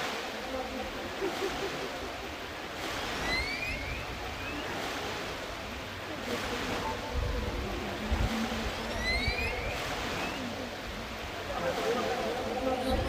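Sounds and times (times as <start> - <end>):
ocean waves washing: 0.0 - 13.0
short rising chirps: 3.2 - 4.7, 8.9 - 10.4.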